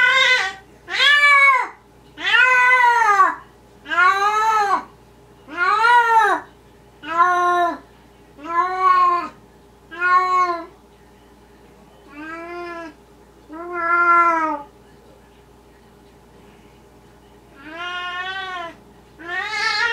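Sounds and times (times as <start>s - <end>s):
cat meowing: 0.0s - 4.9s, 12.1s - 14.7s, 17.6s - 19.9s.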